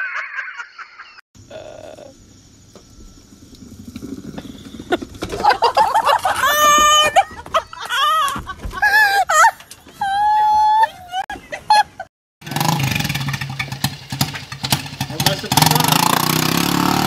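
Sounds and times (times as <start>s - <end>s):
people shrieking and screaming: 5.8s - 11.2s.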